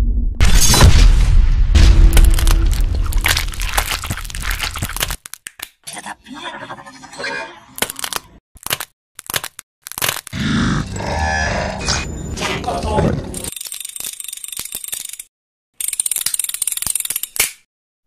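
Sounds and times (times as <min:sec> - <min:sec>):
bone cracking sound effects: 0:01.8 - 0:05.8, 0:07.8 - 0:10.4.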